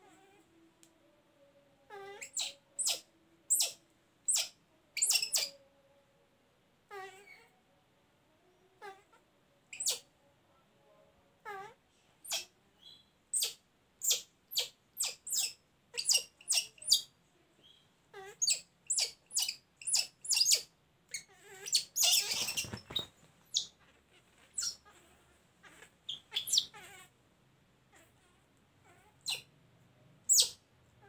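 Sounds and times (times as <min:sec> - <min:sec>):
baby monkey squealing: 0:01.9 - 0:05.6, 0:09.7 - 0:10.1, 0:11.6 - 0:12.5, 0:13.3 - 0:17.1, 0:18.1 - 0:23.8, 0:24.5 - 0:25.0, 0:25.6 - 0:27.1, 0:28.9 - 0:29.5, 0:30.3 - 0:30.6.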